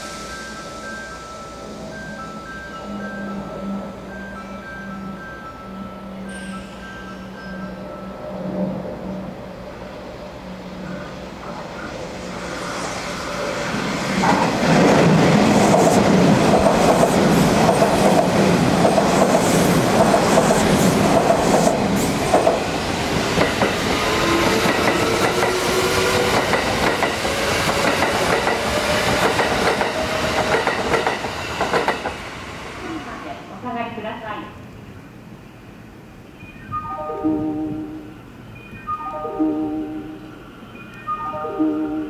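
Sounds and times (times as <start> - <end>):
train drive whining: 0.0 - 33.6.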